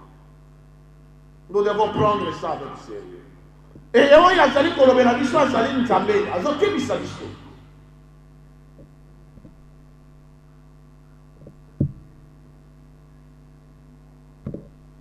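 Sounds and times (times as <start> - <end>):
electrical mains hum: 0.0 - 15.0
microphone thumps: 3.6 - 4.0, 8.7 - 10.0, 11.3 - 12.3, 14.4 - 14.9.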